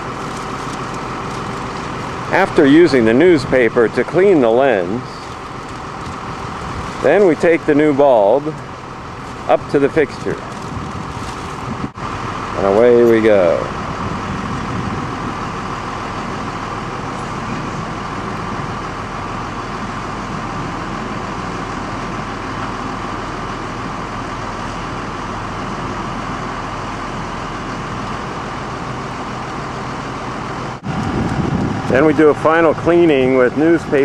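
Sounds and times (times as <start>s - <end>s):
truck engine running: 0.0s - 34.0s.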